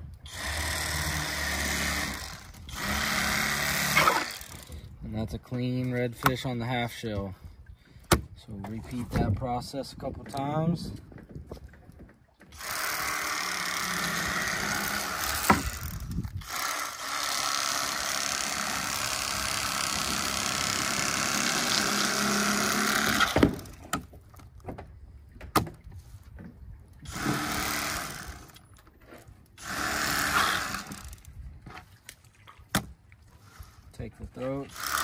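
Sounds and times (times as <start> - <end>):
electric fillet knife running: 12.6 - 23.4.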